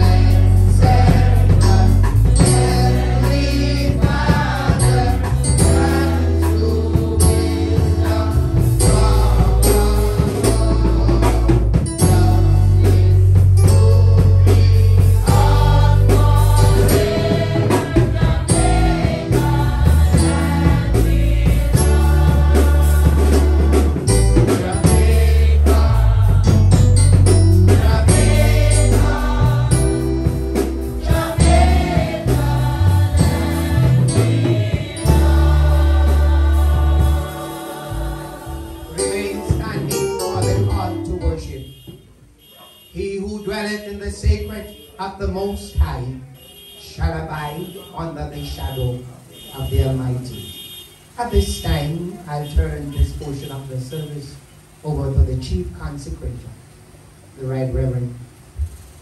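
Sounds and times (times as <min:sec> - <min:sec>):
band with heavy bass and drums: 0:00.0 - 0:41.2
group of voices singing: 0:00.0 - 0:41.4
man singing into microphone: 0:08.8 - 0:15.4.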